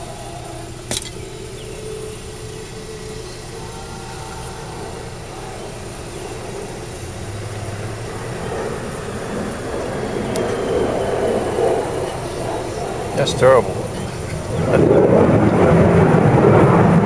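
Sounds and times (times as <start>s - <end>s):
broad rumble: 0.0s - 17.0s
vehicle interior hum: 0.0s - 17.0s.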